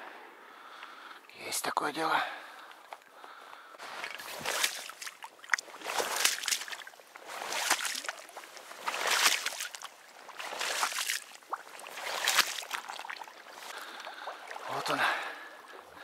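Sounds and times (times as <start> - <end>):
wading through shallow water: 2.0 - 16.0.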